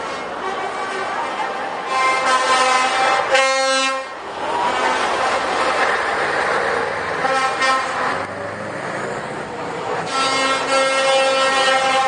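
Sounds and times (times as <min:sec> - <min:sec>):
lorry engine and tyre noise: 0:00.0 - 0:12.0
lorry air horn blasts: 0:10.1 - 0:12.0.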